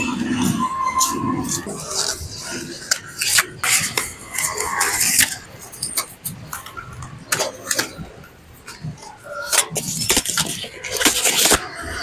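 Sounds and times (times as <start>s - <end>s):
foam sleeves rustling and scraping: 8.6s - 12.0s.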